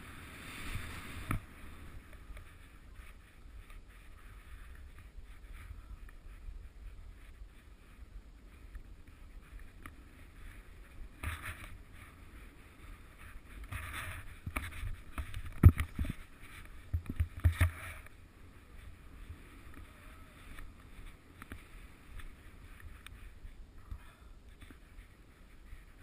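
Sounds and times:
skis swishing through snow: 0.0 - 26.0.

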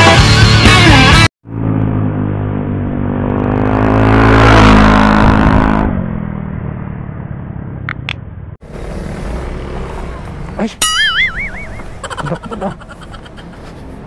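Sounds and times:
motor scooter passing: 8.6 - 14.0.

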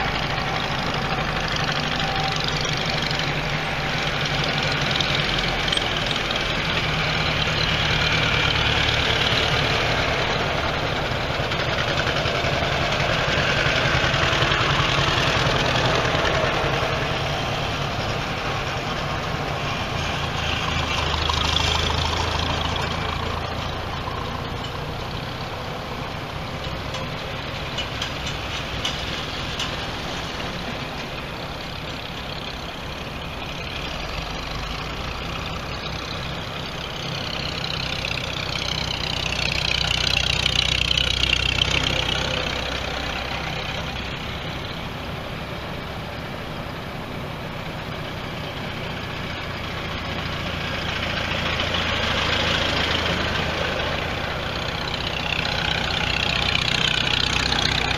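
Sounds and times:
tractor engines running: 0.0 - 57.9.

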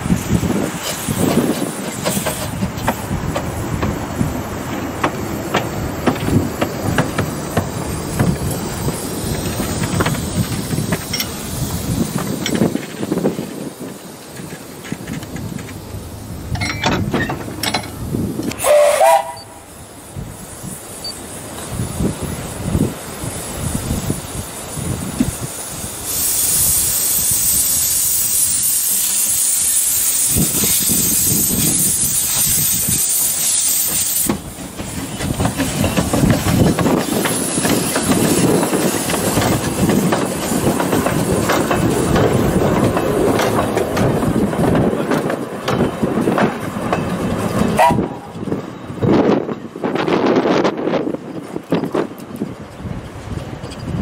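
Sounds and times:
steam locomotive hissing steam: 0.0 - 51.6
steam locomotive chuffing: 0.0 - 54.0
coaches rattling over track: 0.1 - 19.6, 28.9 - 54.0.

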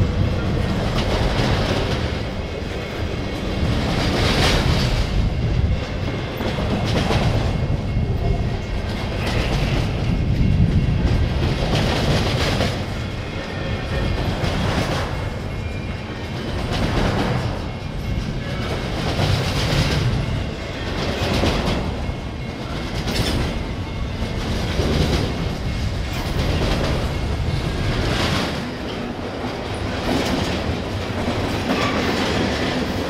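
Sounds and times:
train wheels rumbling on rails: 0.0 - 33.0.

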